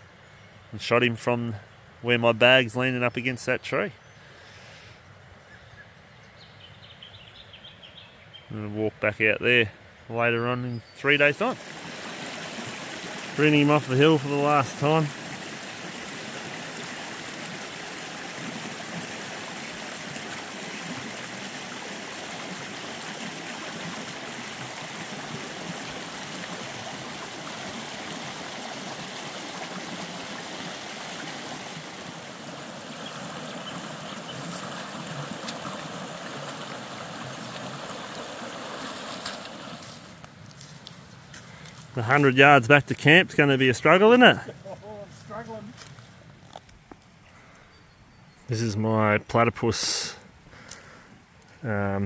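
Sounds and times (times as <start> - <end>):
water rushing over stones: 11.1 - 40.3.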